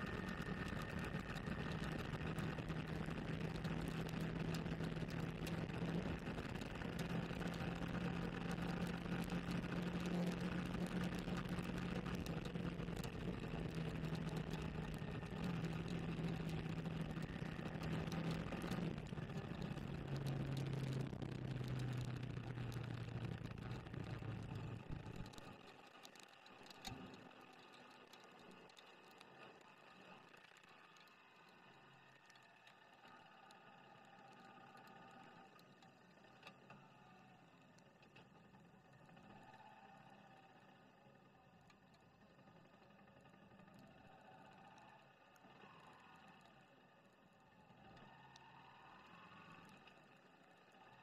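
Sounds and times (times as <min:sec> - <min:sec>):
motorcycle engine running: 0:00.0 - 0:25.6.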